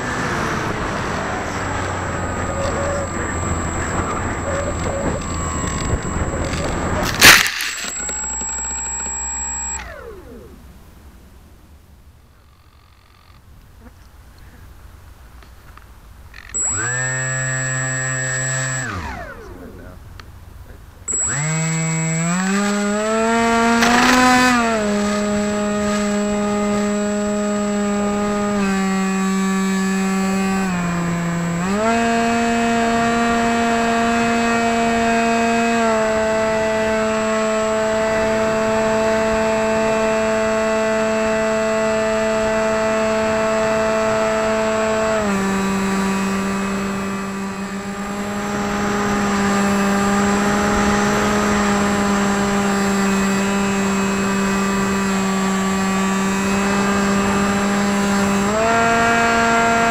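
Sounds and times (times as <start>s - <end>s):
electric motor spinning propeller: 0.0s - 10.8s, 16.4s - 20.0s, 21.1s - 59.9s
thin high-pitched whine: 0.4s - 10.7s.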